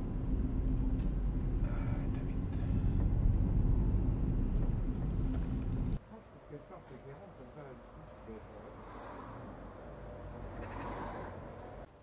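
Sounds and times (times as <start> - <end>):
steady low hum: 0.0 - 6.0
road and engine rumble in car: 0.0 - 12.0.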